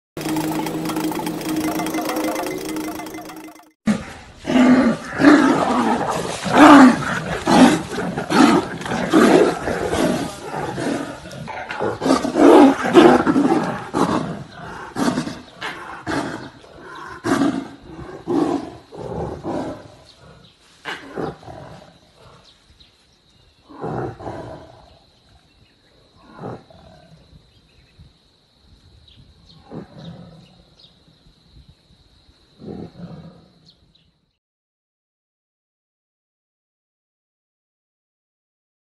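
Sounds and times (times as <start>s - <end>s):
tigers roaring and growling: 4.4s - 22.5s, 23.6s - 25.0s, 26.1s - 27.2s, 29.6s - 30.7s.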